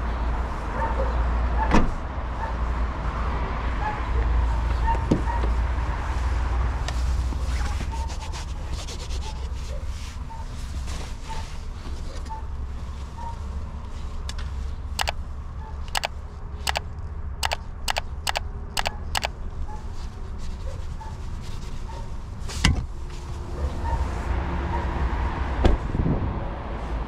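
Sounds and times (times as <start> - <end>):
sharp clicks: 15.9 - 16.1, 17.4 - 19.3.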